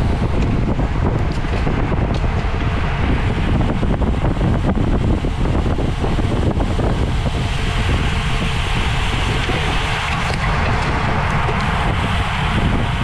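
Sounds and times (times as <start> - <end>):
bicycle rolling rumble: 0.0 - 13.0
wind rushing over microphone: 0.0 - 13.0.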